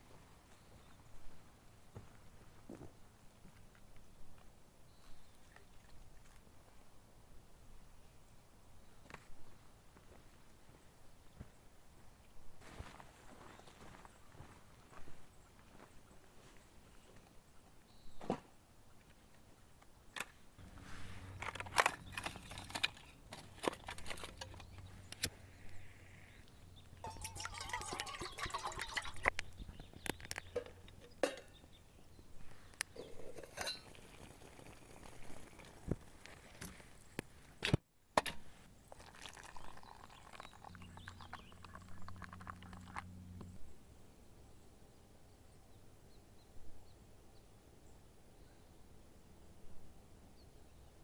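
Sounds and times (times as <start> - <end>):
metal pot clinking: 27.0 - 29.3, 30.6 - 31.6, 33.0 - 34.2
water pouring into cup: 27.0 - 29.4, 33.0 - 35.9, 38.8 - 43.0
utensil stirring ticks: 27.1 - 29.5
fuel crackling: 32.6 - 37.2, 38.9 - 43.6
low steady hum: 38.2 - 51.0.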